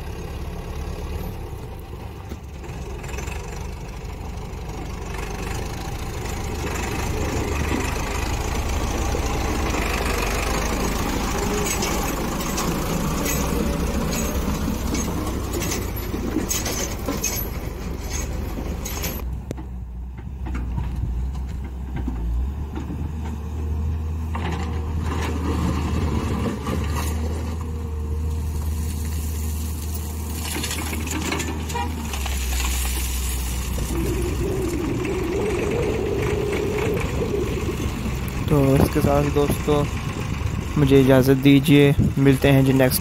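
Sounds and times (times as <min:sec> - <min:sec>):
diesel engines droning: 0:00.0 - 0:43.0
clatter: 0:02.2 - 0:04.2, 0:04.8 - 0:23.4, 0:28.9 - 0:40.6.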